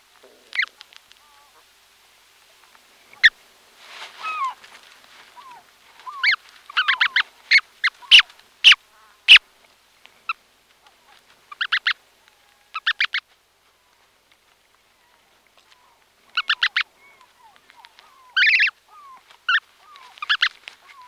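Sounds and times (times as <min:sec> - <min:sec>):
soft rustling: 0:00.0 - 0:21.0
goslings peeping: 0:00.2 - 0:01.7, 0:03.0 - 0:03.4, 0:04.1 - 0:09.5, 0:10.2 - 0:13.3, 0:14.9 - 0:21.0.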